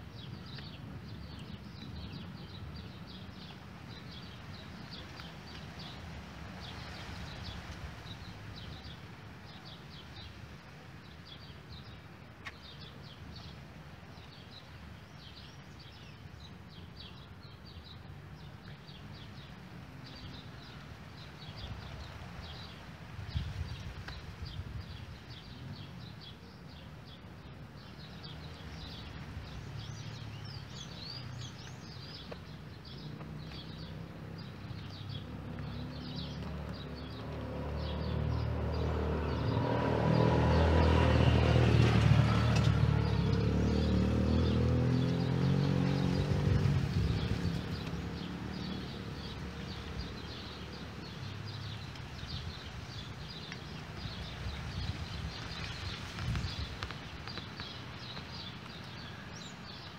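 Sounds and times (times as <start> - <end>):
vehicle engine passing by: 33.0 - 57.4.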